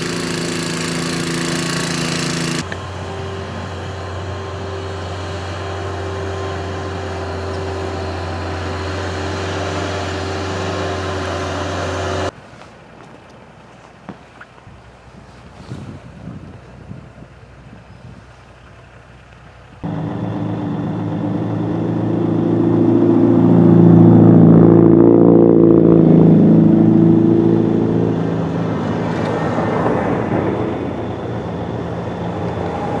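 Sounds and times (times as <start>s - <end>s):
heavy vehicle engine hum: 0.0s - 13.0s, 16.2s - 33.0s
car passing close: 19.8s - 33.0s.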